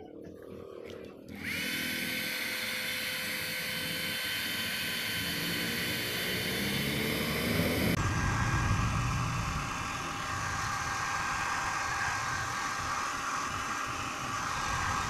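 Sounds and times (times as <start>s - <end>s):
hair dryer running: 1.3s - 15.0s
low rumble: 7.8s - 12.3s.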